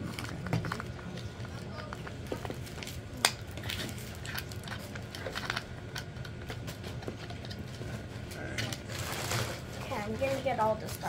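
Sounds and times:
rustling: 0:06.8 - 0:11.0.

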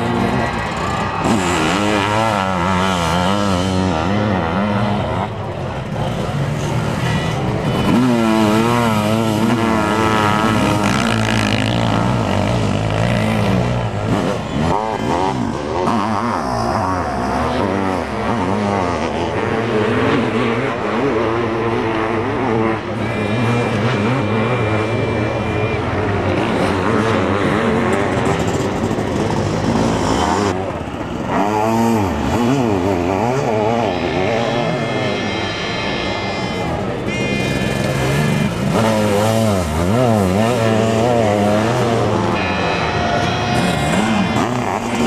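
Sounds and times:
motorcycle engines revving: 0:00.0 - 0:45.0.

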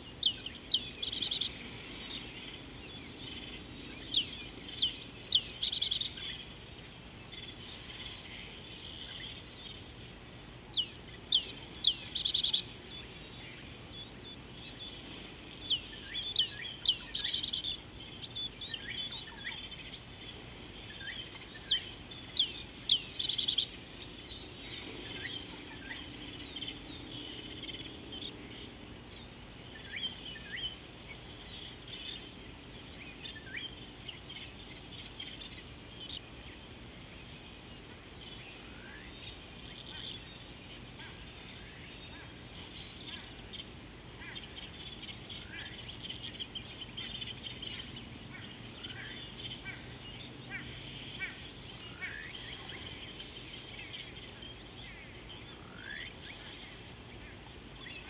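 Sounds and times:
faint bird calls: 0:00.0 - 0:58.0.

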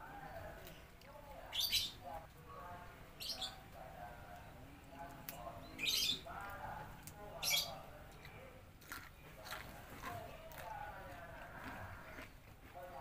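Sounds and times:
birds chirping: 0:00.0 - 0:13.0
crunchy bites: 0:08.8 - 0:10.7.

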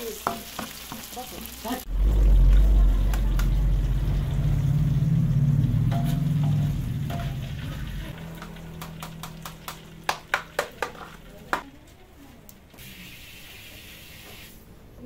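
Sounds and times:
steady low hum: 0:01.9 - 0:08.3
kitchen utensils and dishes clinking: 0:05.9 - 0:11.7.

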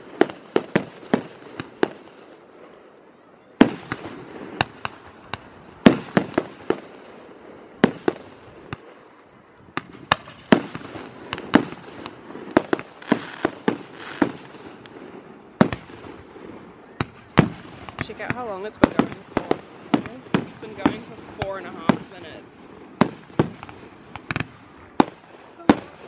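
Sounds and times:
firework crackle: 0:00.0 - 0:26.0
hissing crackle: 0:07.9 - 0:26.0
firework shells bursting: 0:09.6 - 0:26.0.

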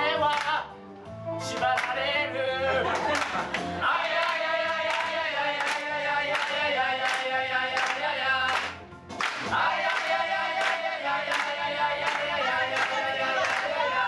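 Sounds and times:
hand clapping: 0:00.3 - 0:00.6, 0:01.5 - 0:02.0, 0:03.0 - 0:13.8
group of voices singing: 0:01.4 - 0:14.0
backing track with steady beat: 0:02.8 - 0:14.0.

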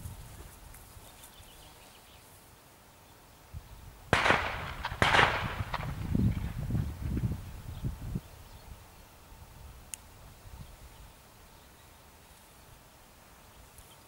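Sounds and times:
firecracker-like bangs: 0:04.1 - 0:07.3.

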